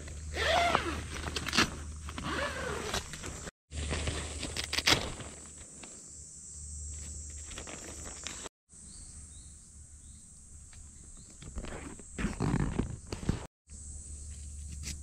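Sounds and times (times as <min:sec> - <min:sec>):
insects droning: 0:00.0 - 0:12.7, 0:13.7 - 0:15.0
tent fabric rustling: 0:00.3 - 0:06.0.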